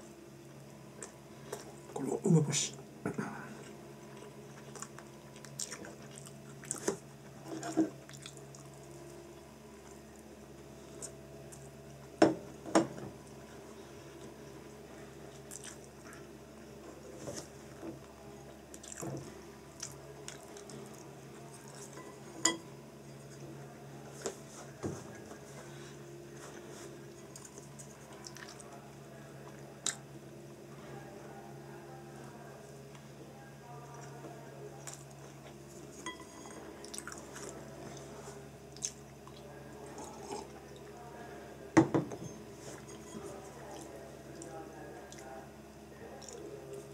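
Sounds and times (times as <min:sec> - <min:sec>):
low steady hum: 0:00.0 - 0:46.9
person chewing food: 0:00.9 - 0:01.9, 0:03.6 - 0:11.7, 0:13.3 - 0:17.6, 0:18.7 - 0:22.2, 0:26.3 - 0:28.7, 0:29.5 - 0:30.0, 0:36.8 - 0:38.1, 0:38.7 - 0:40.6.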